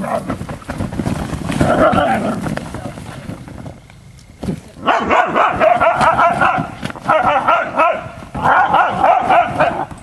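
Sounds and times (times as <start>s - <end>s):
dogs yipping and barking: 4.8s - 10.0s.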